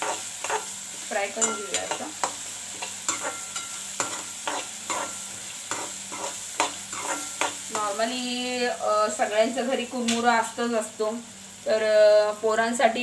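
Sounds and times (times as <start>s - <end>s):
metal spatula scraping a pan: 0.0s - 8.0s
oil sizzling: 0.0s - 13.0s.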